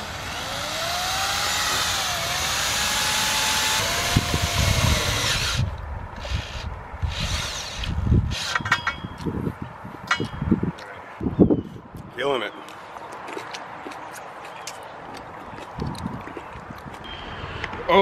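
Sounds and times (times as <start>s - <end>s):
cordless power drill whining: 0.0s - 8.7s.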